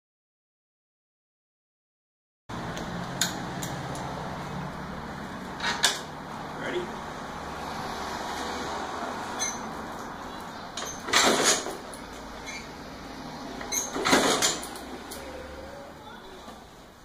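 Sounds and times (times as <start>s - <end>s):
scooter engine kick-start: 10.8s - 11.8s, 13.7s - 15.2s.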